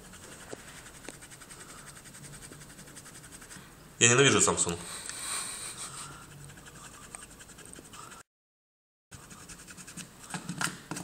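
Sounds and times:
eraser rubbing on plastic: 0.0 - 3.6, 5.4 - 8.2, 9.1 - 11.0.

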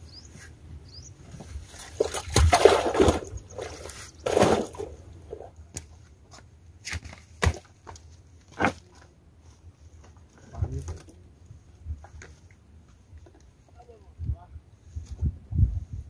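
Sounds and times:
water sloshing and splashing: 1.3 - 5.6.

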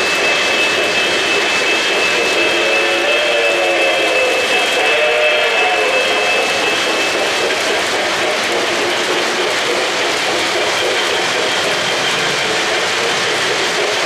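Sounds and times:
model train wheels clattering: 4.0 - 14.0.

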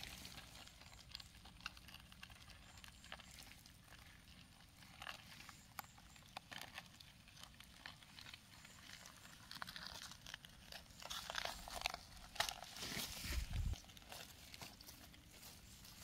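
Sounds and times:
dry leaves crackling and rustling: 0.0 - 1.4, 6.5 - 16.0.

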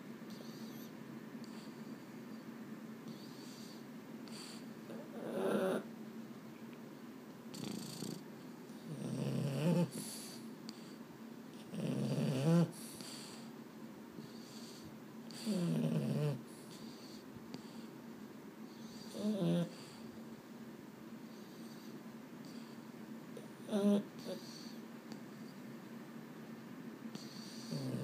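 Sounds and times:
dog snoring: 0.3 - 1.8, 3.0 - 5.9, 7.5 - 13.5, 14.2 - 17.8, 18.7 - 20.0, 21.3 - 22.8, 23.4 - 24.8, 27.1 - 28.0.

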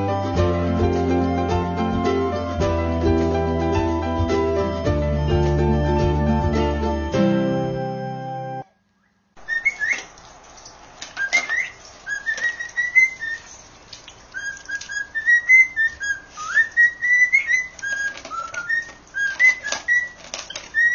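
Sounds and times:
bird whistling short notes: 9.0 - 10.1, 14.4 - 20.9
dog crunching dry food: 17.8 - 20.9.

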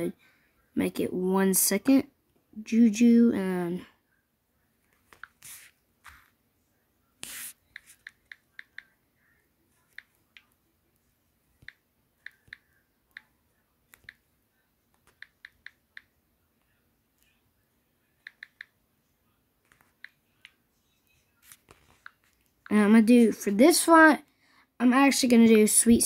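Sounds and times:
phone keyboard tapping: 11.6 - 13.3, 13.9 - 14.2, 14.9 - 16.1, 18.2 - 18.7.

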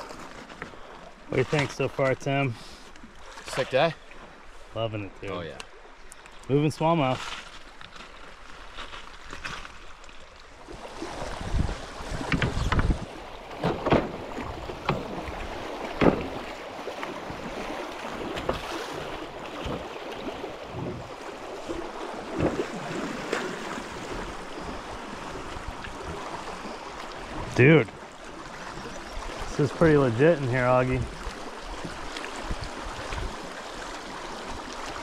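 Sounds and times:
river water rushing: 10.3 - 35.0
wind buffeting microphone: 11.0 - 13.3, 20.6 - 21.2
sharp knocks: 16.0 - 16.4.

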